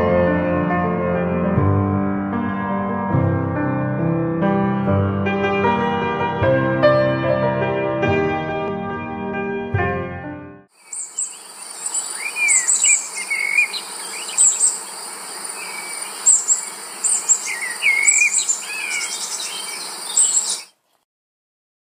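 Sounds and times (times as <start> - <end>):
birds chirping and whistling: 10.8 - 20.8
insects chorus: 10.8 - 20.8.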